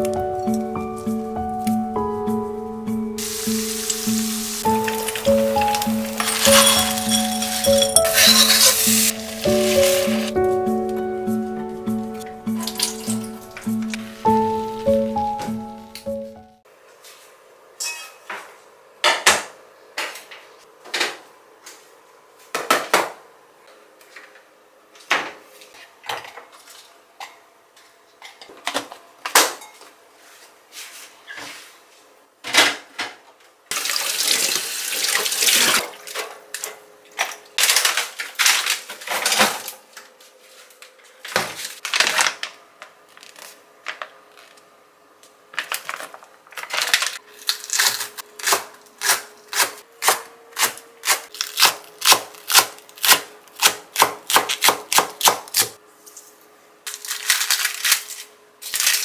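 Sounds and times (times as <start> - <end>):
dishes and utensils clinking: 3.8 - 9.2, 12.6 - 14.1.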